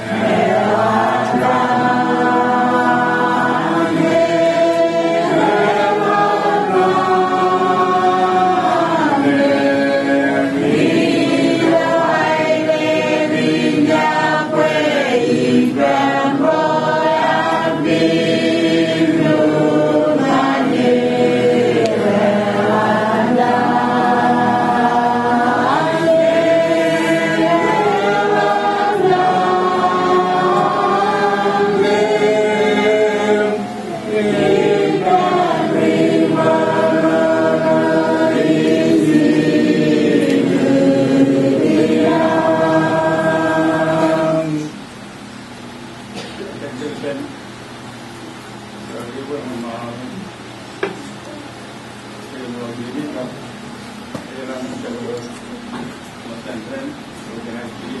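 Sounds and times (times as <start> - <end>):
group singing a hymn: 0.0 - 46.3.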